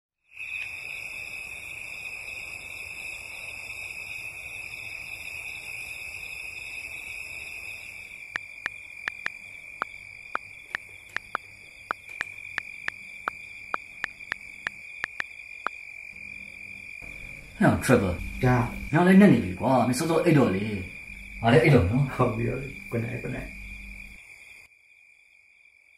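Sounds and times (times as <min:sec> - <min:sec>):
cricket trill: 0:00.2 - 0:25.9
computer keyboard typing: 0:09.1 - 0:09.4, 0:10.7 - 0:15.2.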